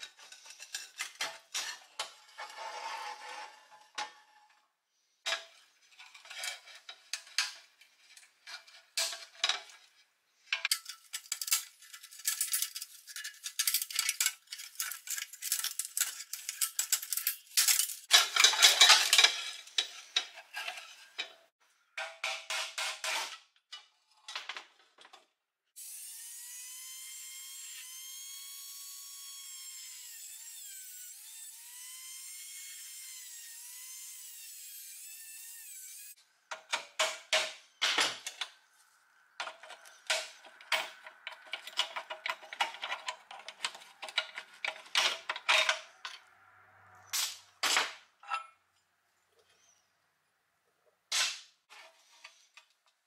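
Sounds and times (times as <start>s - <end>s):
steel toy parts clanking: 0.0s - 4.6s, 5.2s - 25.2s, 39.4s - 46.2s
rotary tool cutting steel: 25.8s - 36.2s.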